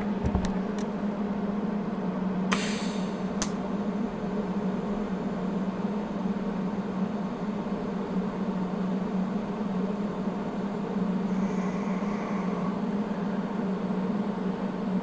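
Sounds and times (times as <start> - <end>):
short hiss: 2.5 - 3.3
sharp click: 2.5 - 3.6.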